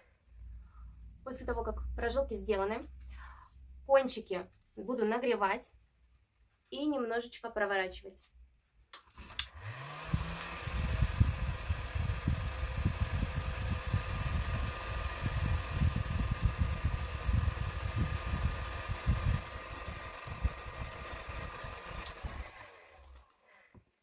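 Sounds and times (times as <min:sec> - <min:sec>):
heat gun fan whine: 0:09.2 - 0:23.5.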